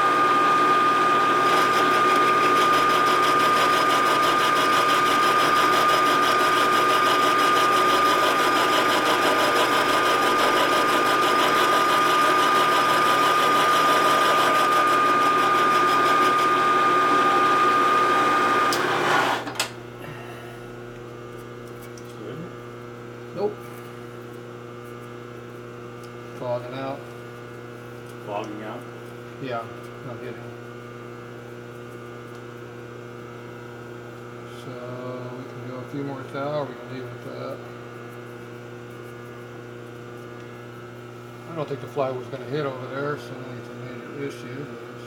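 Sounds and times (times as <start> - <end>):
milling machine whine: 0.0 - 20.3.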